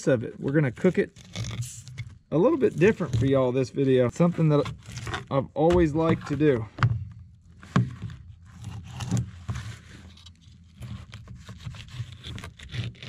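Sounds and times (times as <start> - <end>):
knife scraping fish scales: 1.1 - 3.4.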